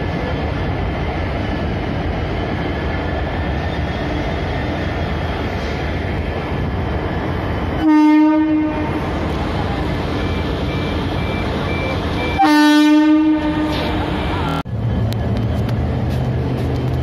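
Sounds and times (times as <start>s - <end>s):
locomotive rumbling past: 0.0s - 17.0s
locomotive horn blasts: 7.8s - 9.1s, 12.4s - 14.0s.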